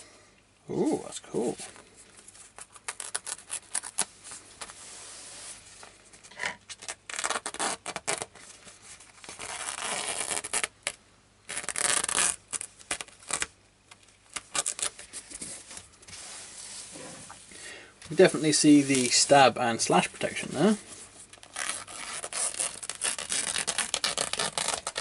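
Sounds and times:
fabric rustling: 14.3s - 17.6s.

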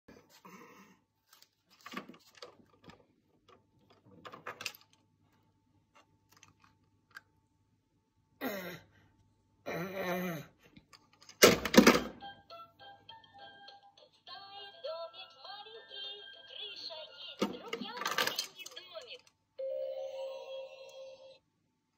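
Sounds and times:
plastic toy keys rattling: 17.4s - 19.3s.

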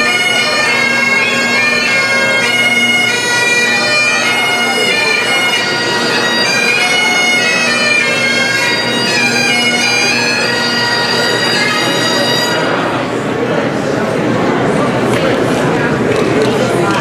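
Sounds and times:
bagpipes playing a tune: 0.0s - 13.2s.

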